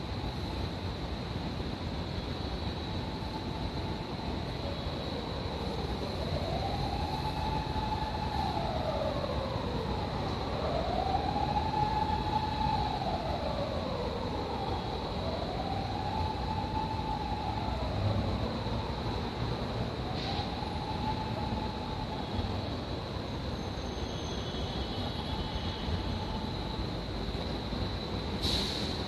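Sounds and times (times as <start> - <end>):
wailing siren: 2.9 - 22.8, 24.5 - 26.8.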